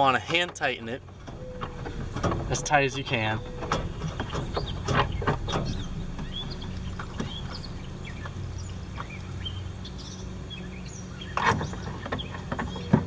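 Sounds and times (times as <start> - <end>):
handling clatter: 0.0 - 9.2
steady low hum: 0.0 - 12.8
faint bird chirps: 1.4 - 13.0.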